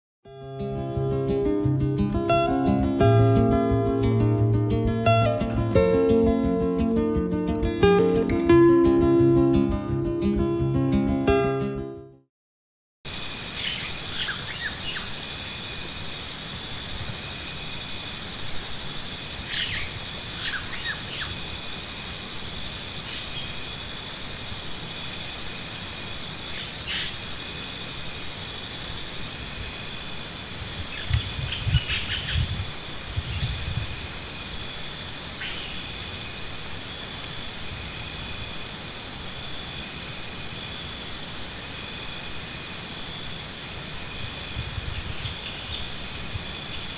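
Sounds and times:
high insect drone: 0:13.1 - 0:46.9
insect fast-pulsing trill: 0:13.1 - 0:46.9.

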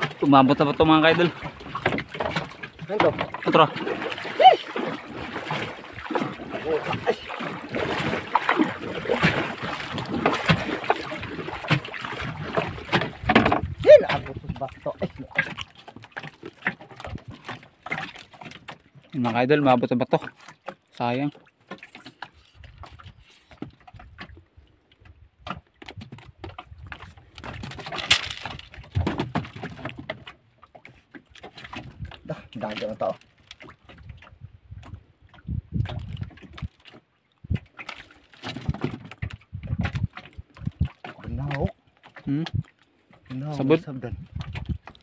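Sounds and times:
sea water splashing against boat hull: 0:00.0 - 0:45.0
wind on microphone: 0:12.3 - 0:14.7, 0:34.0 - 0:36.7, 0:38.6 - 0:41.7, 0:44.0 - 0:45.0
knocks on wooden boat: 0:12.6 - 0:14.2, 0:28.9 - 0:30.2.

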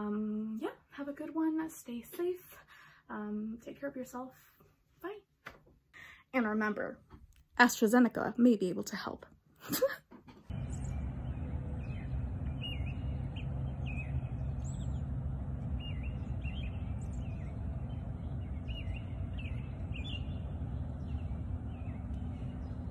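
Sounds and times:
low outdoor rumble: 0:10.5 - 0:22.9
small birds chirping: 0:10.5 - 0:22.9.

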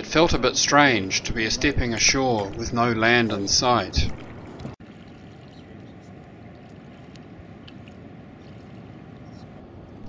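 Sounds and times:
shallow water: 0:00.0 - 0:10.0
wind: 0:00.0 - 0:10.0
faint ticks: 0:05.4 - 0:09.5.

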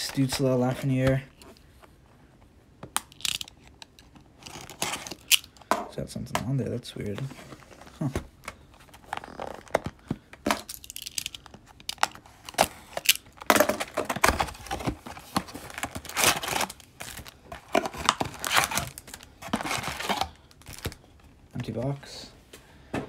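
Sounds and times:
foil packs crinkling: 0:08.6 - 0:22.0.

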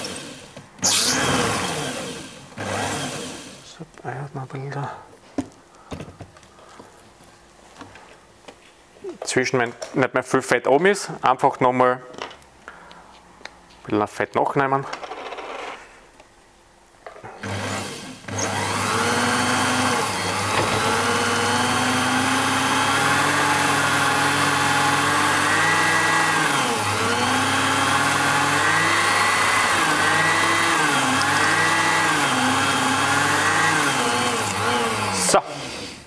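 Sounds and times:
line spooling machine whirring: 0:00.0 - 0:03.6, 0:17.4 - 0:36.0.

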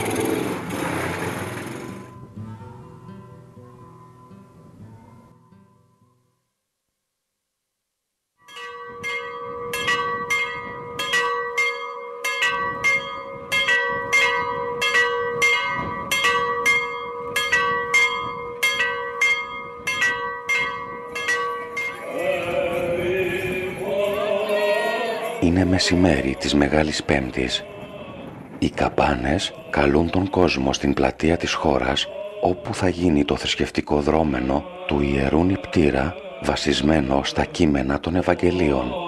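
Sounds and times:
church bells ringing: 0:08.5 - 0:27.9.

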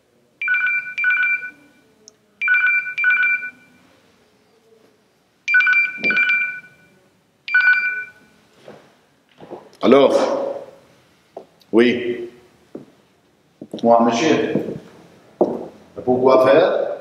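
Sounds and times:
phone ringtone double rings: 0:00.4 - 0:01.7, 0:02.4 - 0:03.8, 0:05.5 - 0:06.9, 0:07.5 - 0:08.2.

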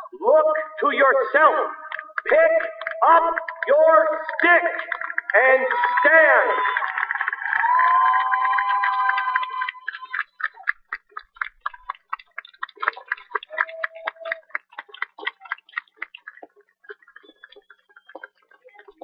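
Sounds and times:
crowd applauding: 0:01.9 - 0:19.0.

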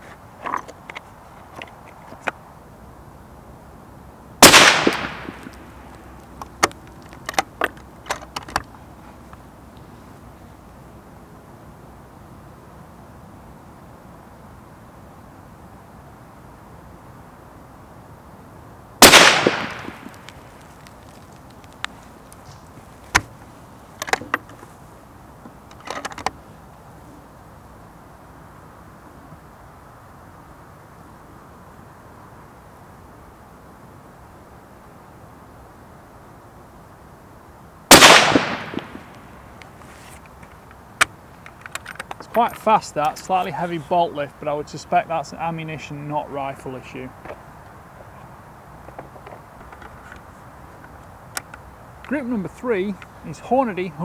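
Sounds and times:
rifle shot: 0:04.4 - 0:05.6, 0:19.0 - 0:20.2, 0:37.9 - 0:39.1.

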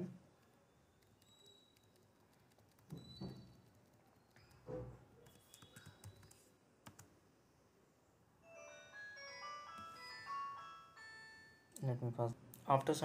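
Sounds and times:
keyboard keystrokes: 0:05.2 - 0:07.1.

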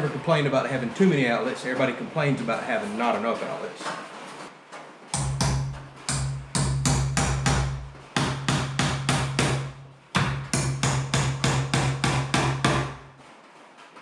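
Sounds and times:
hammer driving nails into wood: 0:05.2 - 0:13.0.

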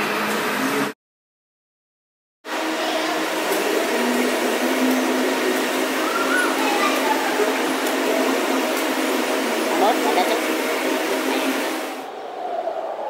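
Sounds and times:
electric go-karts whirring: 0:02.5 - 0:12.1
voices: 0:06.0 - 0:08.6.

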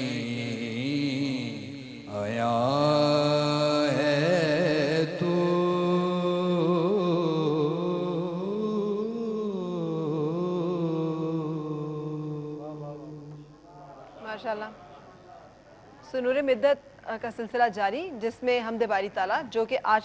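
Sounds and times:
man singing a hymn: 0:00.0 - 0:13.4.

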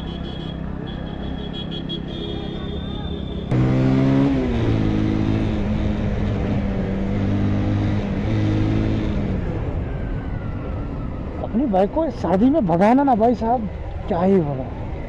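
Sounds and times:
motorcycle engine accelerating: 0:03.5 - 0:10.5.

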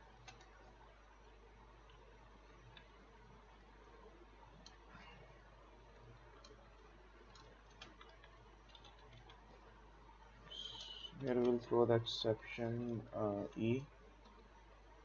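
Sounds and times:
low steady hum: 0:00.0 - 0:15.0
keyboard keys clicking: 0:00.2 - 0:00.7, 0:06.4 - 0:09.4.

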